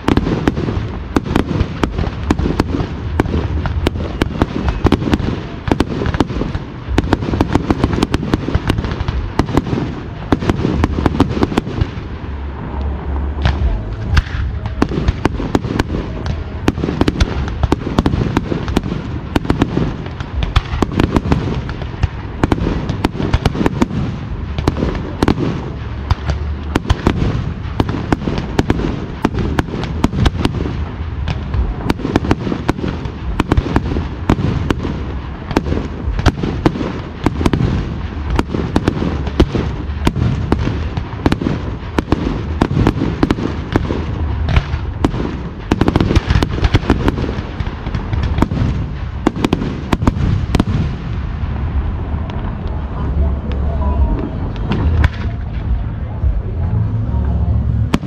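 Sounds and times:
deep low rumble: 0:00.0 - 0:58.0
fireworks bursts and bangs: 0:00.0 - 0:58.0.

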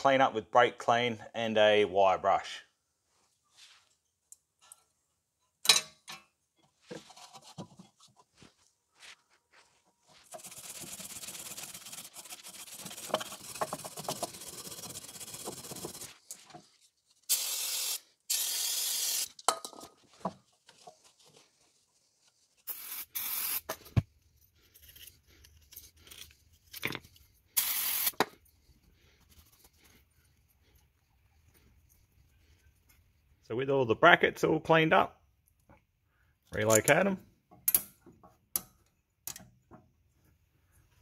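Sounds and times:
wire brush scrubbing metal: 0:10.2 - 0:16.5
aerosol spray hissing: 0:17.3 - 0:19.3, 0:22.7 - 0:23.7, 0:27.6 - 0:28.2.

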